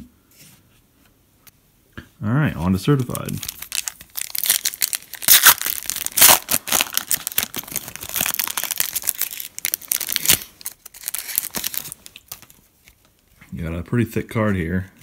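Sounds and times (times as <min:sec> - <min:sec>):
foil wrapper tearing and crackling: 0:02.9 - 0:12.6.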